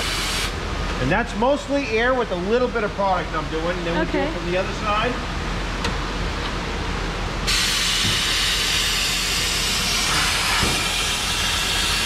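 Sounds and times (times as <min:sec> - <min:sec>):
compressed air gun hissing: 0:07.5 - 0:12.0.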